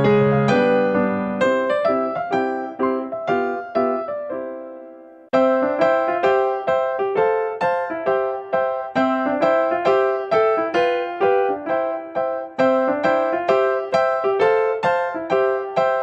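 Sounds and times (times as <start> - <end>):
keyboard melody: 0.0 - 16.0.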